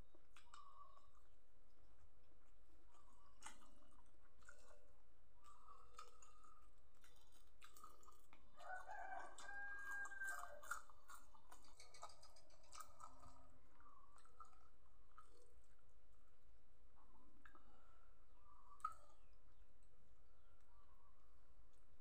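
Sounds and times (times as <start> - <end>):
man chewing food: 0.0 - 22.0
rooster crowing: 8.6 - 10.8.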